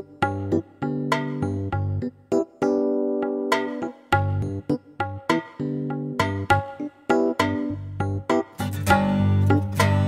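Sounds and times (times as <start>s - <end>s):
plucked notes over bass line: 2.7s - 10.0s.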